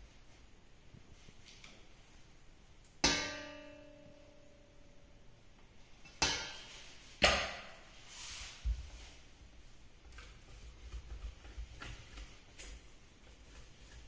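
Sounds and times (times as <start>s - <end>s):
dough being scraped: 10.1s - 14.0s.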